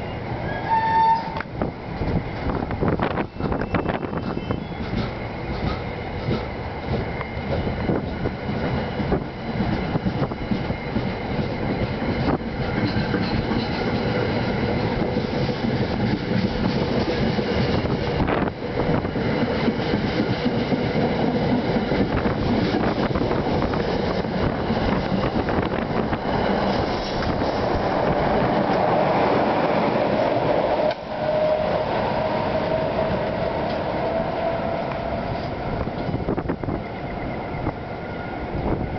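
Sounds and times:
train cars rumbling: 0.0s - 38.9s
wheels clicking over rail joints: 1.2s - 29.0s.

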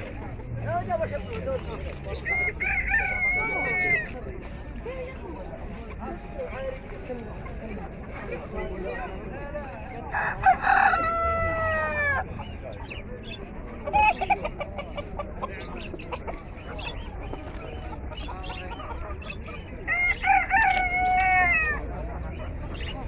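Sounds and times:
chicken clucks: 5.6s - 23.0s.

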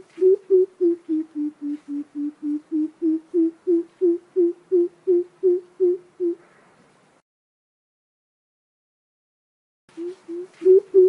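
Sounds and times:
bird giving deep hoots: 0.0s - 6.4s, 9.9s - 11.0s.

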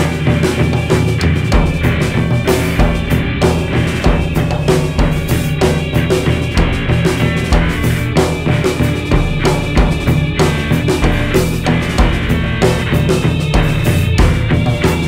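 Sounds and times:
busy jazz drum kit: 0.0s - 15.0s
sustained low notes: 1.1s - 15.0s.

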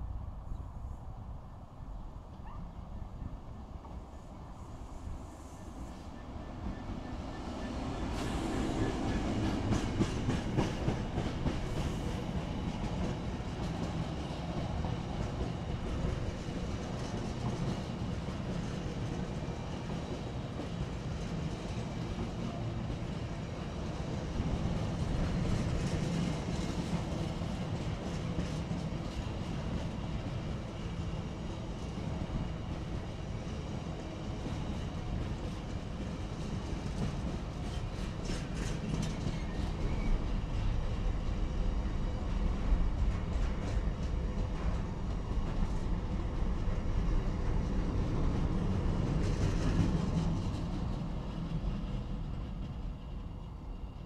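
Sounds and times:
diesel locomotive passing: 0.0s - 54.0s
train wagons rumbling: 2.2s - 54.0s.

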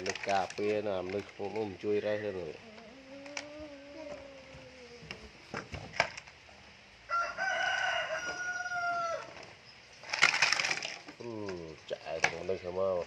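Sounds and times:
rooster crowing: 7.0s - 9.4s.

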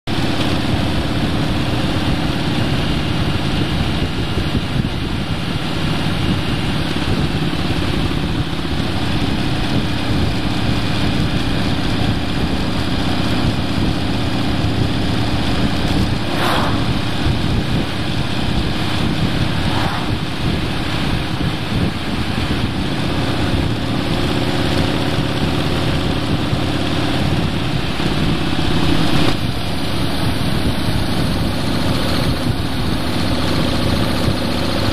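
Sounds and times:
wind and road noise: 0.0s - 34.9s
car engine cruising: 0.1s - 34.9s
truck passing whoosh: 1.2s - 34.4s.

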